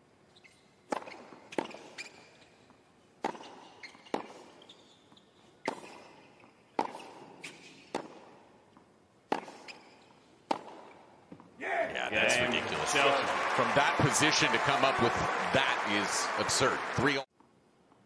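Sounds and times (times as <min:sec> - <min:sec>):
tennis ball struck by rackets: 0:00.9 - 0:01.9, 0:03.2 - 0:04.5, 0:05.6 - 0:08.4, 0:09.3 - 0:09.8, 0:10.5 - 0:11.0.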